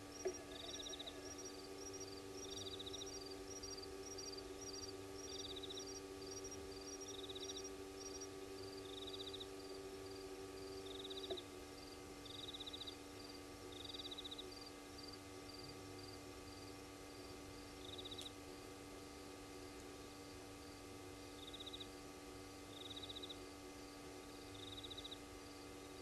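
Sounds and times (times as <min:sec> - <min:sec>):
camera motor hum: 0:00.1 - 0:04.8
insect buzzing trill: 0:00.1 - 0:16.7
insect paired chirps: 0:00.1 - 0:18.4, 0:20.2 - 0:22.0, 0:22.7 - 0:23.4, 0:24.5 - 0:25.6.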